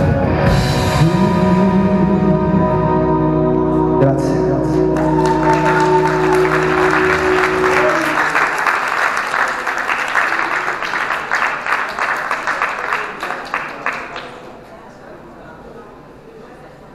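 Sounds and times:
audience applauding: 0:04.8 - 0:14.6.

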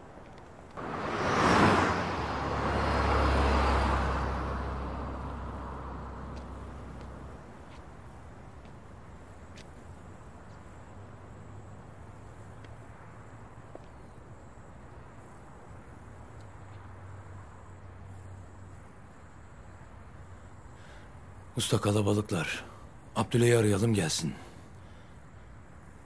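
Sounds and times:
faint ticks: 0:12.5 - 0:12.9, 0:16.3 - 0:16.9.

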